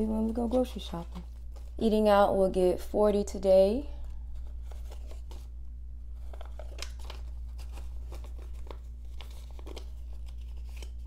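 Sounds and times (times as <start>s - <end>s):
paper bills rustling and crinkling: 4.3s - 5.5s, 6.2s - 11.0s.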